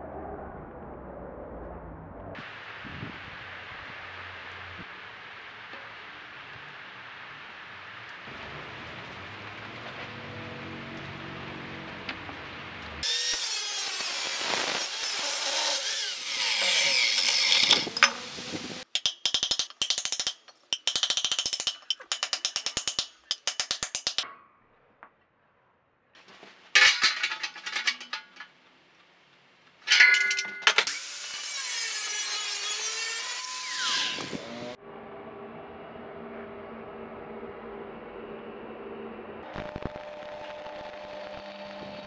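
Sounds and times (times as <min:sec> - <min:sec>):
angle grinder running: 0:13.0 - 0:18.4
power tool cutting metal: 0:13.0 - 0:18.8, 0:29.9 - 0:34.8
ringing metal clanks: 0:26.8 - 0:28.5, 0:29.9 - 0:30.9.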